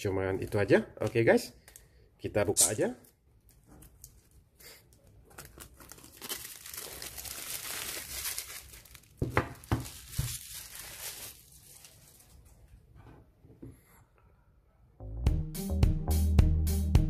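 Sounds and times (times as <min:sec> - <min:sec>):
plastic film crinkling and tearing: 0:03.0 - 0:12.6.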